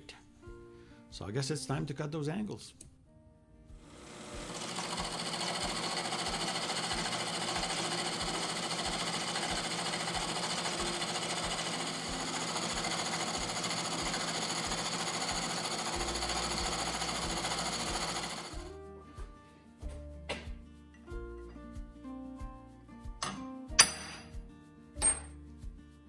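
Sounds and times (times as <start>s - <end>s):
milling machine cutting metal: 3.8s - 18.6s.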